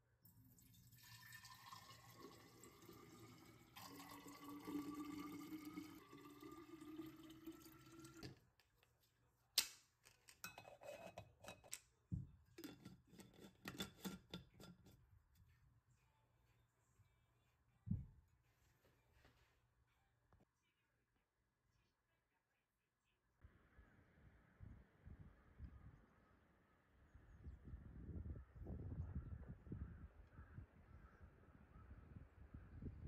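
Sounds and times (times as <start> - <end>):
water pouring into glass bottles: 0.3 - 8.4.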